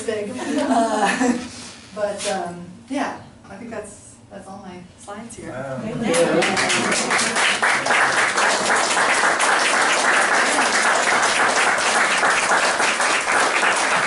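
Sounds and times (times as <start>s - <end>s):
audience applauding: 6.1s - 14.0s.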